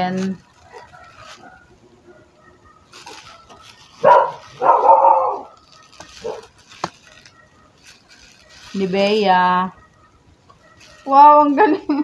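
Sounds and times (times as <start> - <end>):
bubble wrap crinkling: 0.0 - 12.0
dog barking: 0.6 - 7.8, 10.0 - 11.2.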